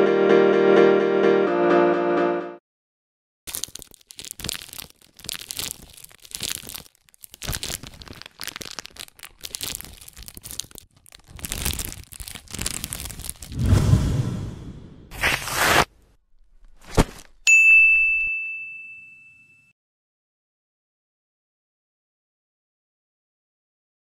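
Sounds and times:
plastic bags crinkling: 3.5 - 13.6.

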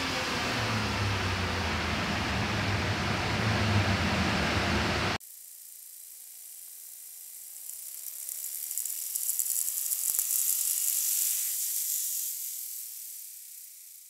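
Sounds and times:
engine revving up: 0.0 - 5.2.

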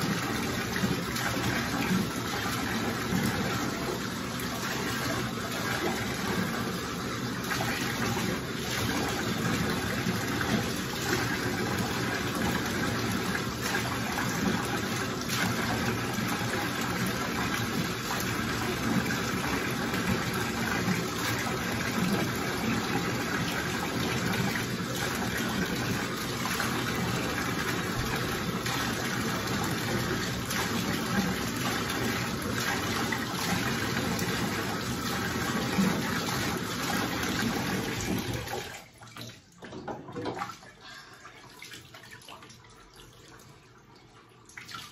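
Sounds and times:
water running from bathtub tap: 0.0 - 44.9
knocks and splashes: 35.4 - 40.7.

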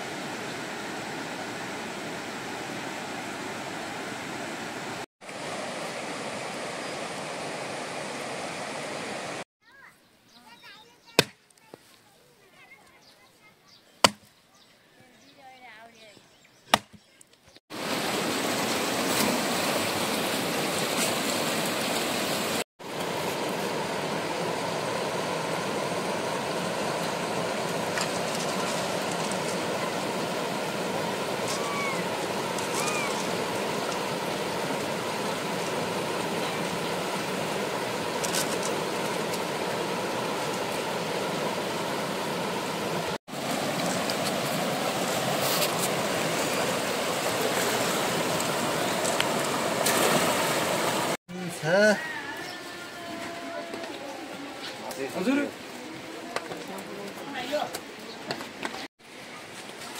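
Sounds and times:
rushing water hiss: 0.0 - 9.4, 17.7 - 53.0.

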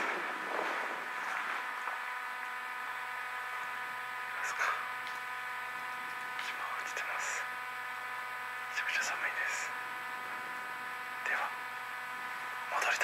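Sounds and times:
electrical hum-buzz: 0.0 - 13.0.

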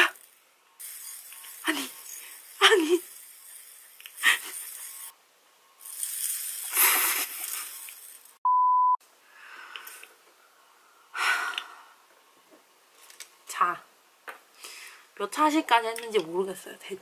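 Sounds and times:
steady bleep tone: 8.4 - 9.0.

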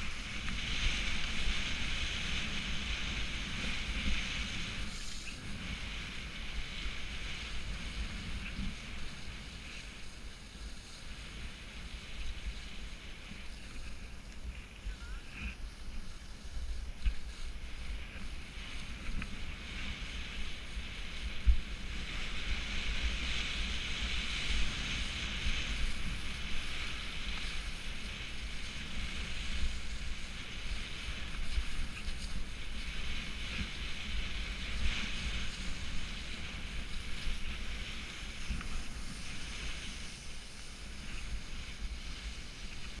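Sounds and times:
skis hissing through slush: 0.0 - 43.0
wind buffeting microphone: 0.0 - 43.0.

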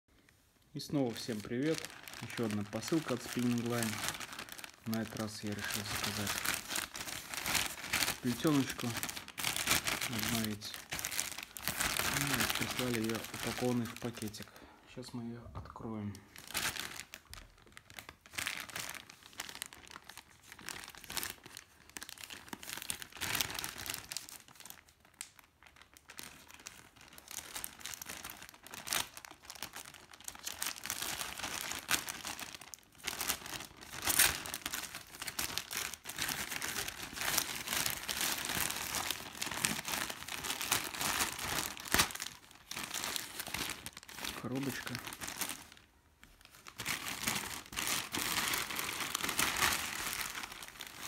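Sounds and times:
plastic mailer bag crinkling: 0.8 - 14.5, 16.0 - 51.0.

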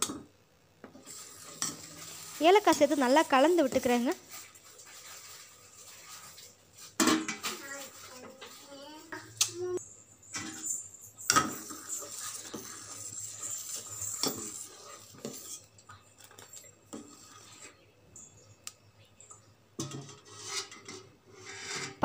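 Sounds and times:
metal ladle scraping a pot: 10.3 - 17.8, 19.8 - 22.0.

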